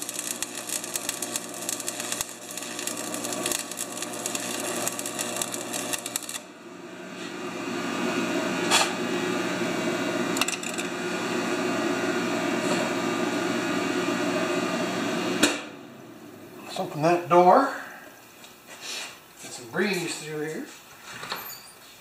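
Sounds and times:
welding arc crackling: 0.0s - 6.6s, 10.2s - 11.4s.

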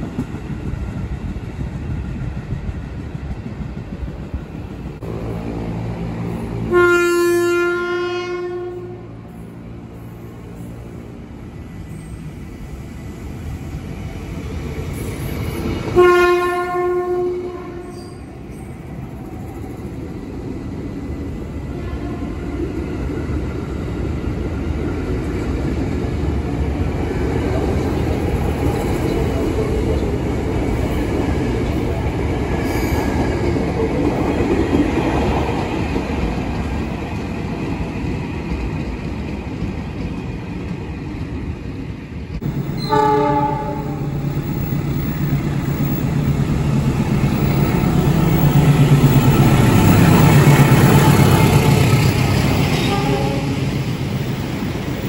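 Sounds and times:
train rumble and wheel clatter: 0.0s - 55.0s
train horn blast: 6.6s - 9.4s, 16.0s - 18.3s, 21.7s - 22.6s, 42.7s - 44.3s, 52.6s - 53.7s.

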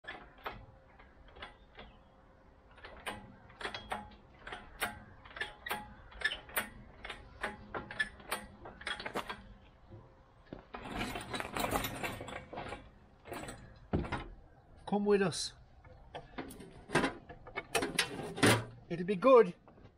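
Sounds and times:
crane scraping and rumbling: 2.6s - 19.0s
hydraulic hoist pump clicking: 2.7s - 9.5s.

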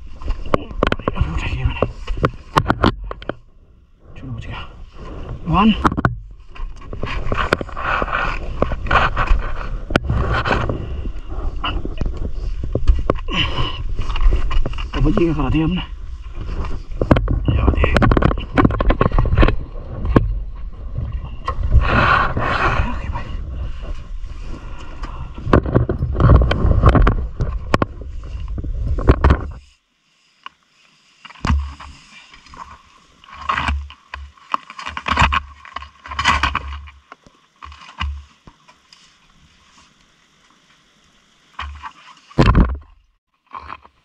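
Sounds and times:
rustles and knocks: 0.0s - 3.6s, 4.9s - 15.5s, 16.1s - 29.7s, 31.2s - 40.0s, 41.5s - 44.0s
wind rumble on microphone: 0.0s - 29.6s
microphone handling noises: 0.0s - 29.8s, 31.2s - 39.8s, 41.6s - 44.0s.

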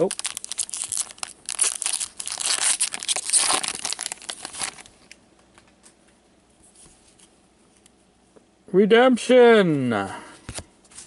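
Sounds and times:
wrapper tearing and crinkling: 0.0s - 5.2s.

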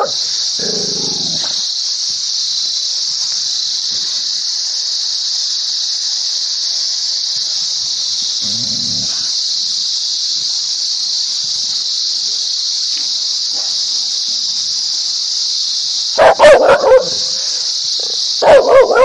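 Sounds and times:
high-pitched hiss: 0.0s - 19.0s
dog barking aggressively: 16.2s - 19.0s.

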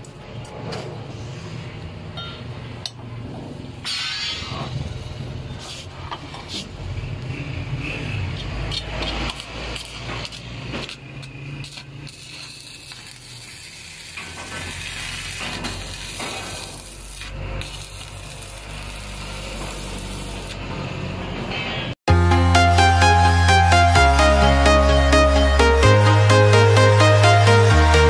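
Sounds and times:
welding arc crackling: 7.2s - 20.9s.

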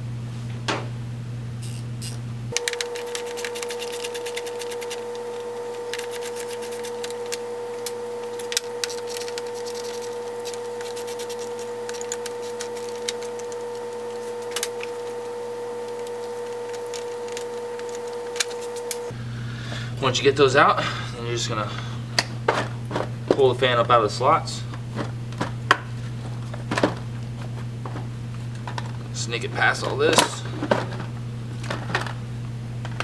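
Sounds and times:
steady hum: 0.0s - 33.0s.

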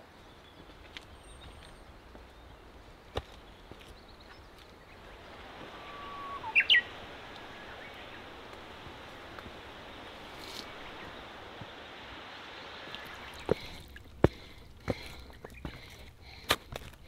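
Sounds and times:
steady background hiss: 1.9s - 16.8s
songbird whistling: 5.2s - 8.3s.

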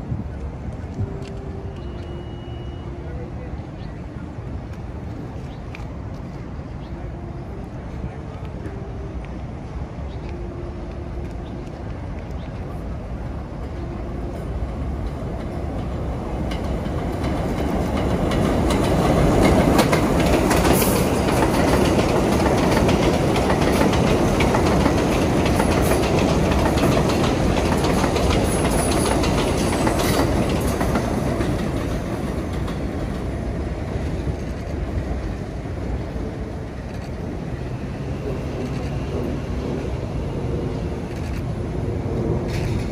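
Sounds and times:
subway train rumbling on rails: 0.0s - 42.9s
wheels clacking over rail joints: 13.4s - 42.9s.

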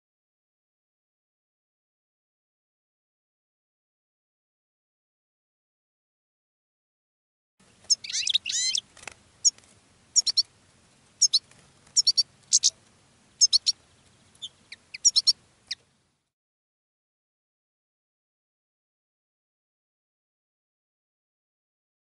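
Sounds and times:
finches twittering and chirping: 7.7s - 9.6s, 10.2s - 10.5s, 11.2s - 12.8s, 13.4s - 15.8s.

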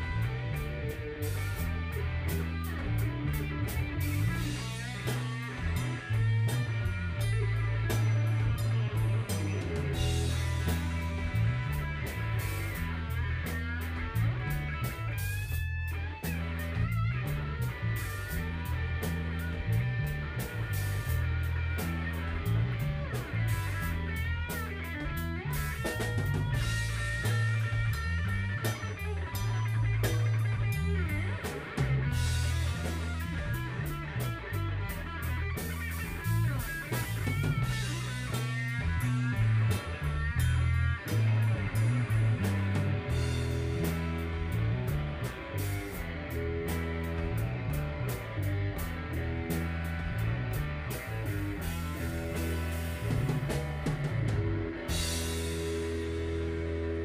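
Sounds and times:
bass guitar: 0.0s - 57.0s
drum kit with cymbal hits: 0.0s - 57.0s
electric guitar with bent notes: 0.0s - 57.0s.

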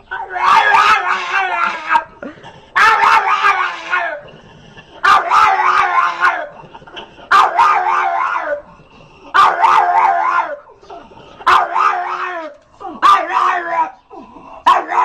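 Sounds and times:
dog howling: 0.0s - 2.2s, 2.8s - 4.3s, 5.0s - 6.6s, 7.3s - 8.7s, 9.3s - 10.8s, 11.4s - 15.0s.

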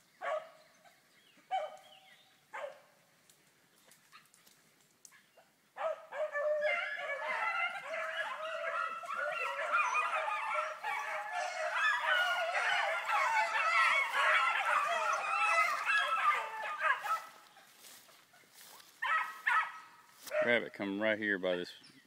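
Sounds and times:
pack of dogs baying: 5.8s - 20.6s.

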